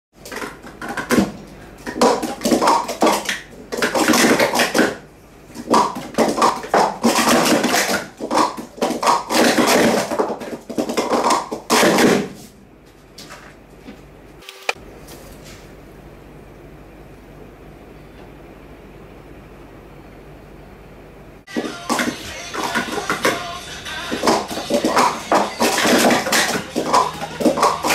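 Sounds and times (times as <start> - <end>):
plastic cups clattering: 0.2 - 12.4, 21.6 - 23.5, 24.1 - 27.9.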